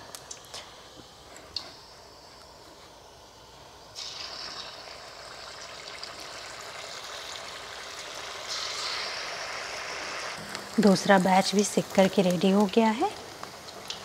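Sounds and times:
food sizzling in hot oil: 0:04.0 - 0:14.0.

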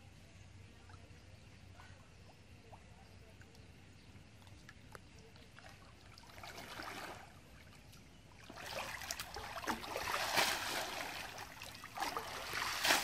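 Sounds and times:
water sloshing and splashing: 0:04.4 - 0:13.0.

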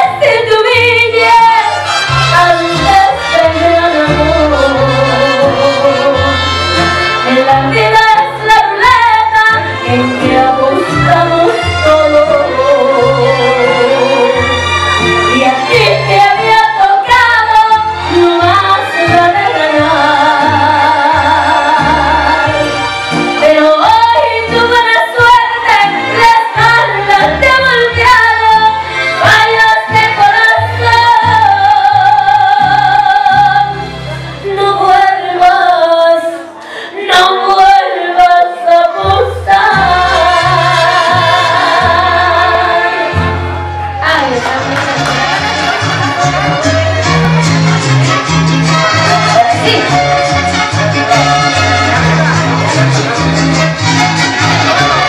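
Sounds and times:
woman singing with vibrato: 0:00.0 - 0:06.6, 0:07.2 - 0:22.7, 0:23.4 - 0:33.8, 0:34.4 - 0:47.2, 0:48.6 - 0:50.8
band with pulsing bass: 0:39.7 - 0:55.0.

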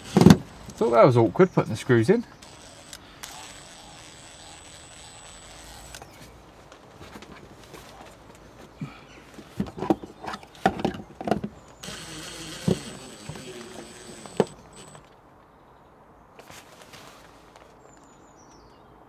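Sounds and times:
cordless drill driving a screw: 0:00.0 - 0:01.0, 0:02.4 - 0:06.3, 0:11.8 - 0:15.1.

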